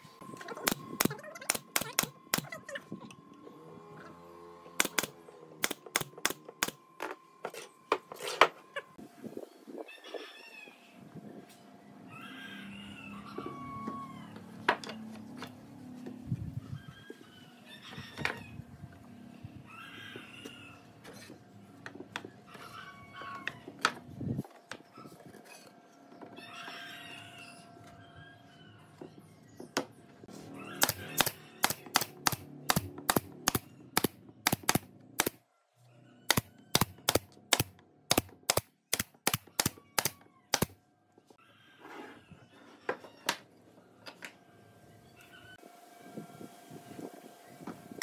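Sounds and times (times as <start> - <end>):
nail gun firing into wood: 0.6 - 2.5, 4.8 - 6.8, 30.8 - 35.4, 36.3 - 40.8.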